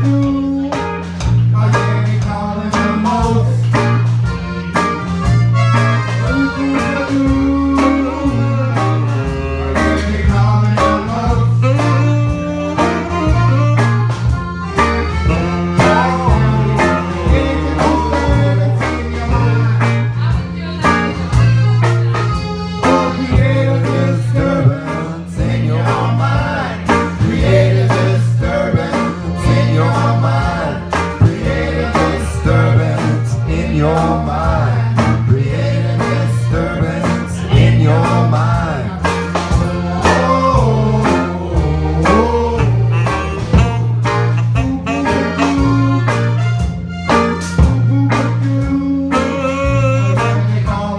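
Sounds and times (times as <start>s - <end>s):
electric guitar: 0.0s - 50.9s
live band playing blues-country: 0.0s - 50.9s
repeating bass notes: 0.0s - 50.9s.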